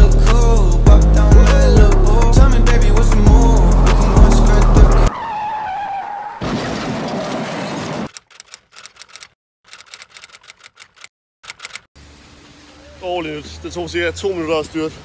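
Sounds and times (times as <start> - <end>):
typewriter key clacks: 8.1 - 11.9.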